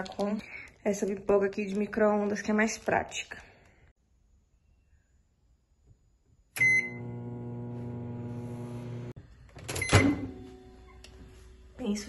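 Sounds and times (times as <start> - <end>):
microwave electric hum: 6.5 - 12.0
microwave control panel beeps: 6.6 - 7.3, 9.7 - 10.4.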